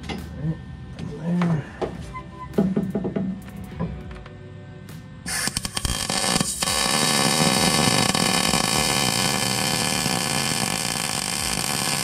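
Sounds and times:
welding arc crackling hiss: 5.3 - 12.0.

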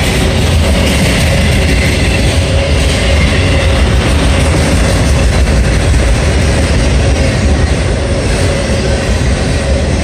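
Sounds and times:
train wheels rumbling on rails: 0.0 - 10.0.

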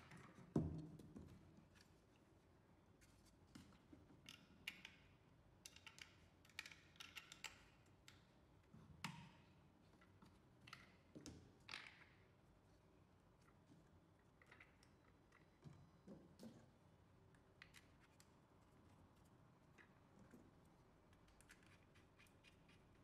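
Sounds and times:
plastic parts clicking and tapping: 5.6 - 8.2.

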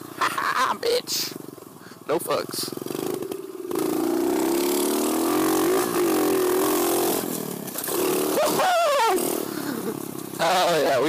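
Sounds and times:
small motorbike engine revving: 2.5 - 11.0.

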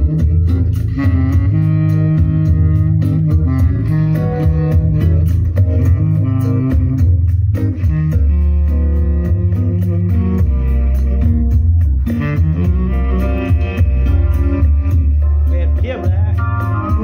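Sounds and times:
instrumental music with guitar and bass: 0.0 - 17.0.

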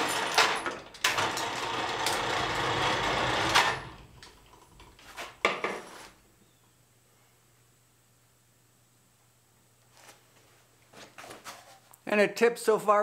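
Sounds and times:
crane hoist running: 0.0 - 4.9
metal clunk and rattle: 0.0 - 5.8.

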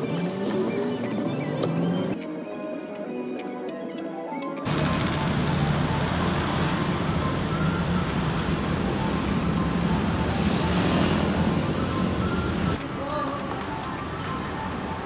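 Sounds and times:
vehicle passing close: 4.7 - 12.8
road traffic: 4.7 - 15.0.

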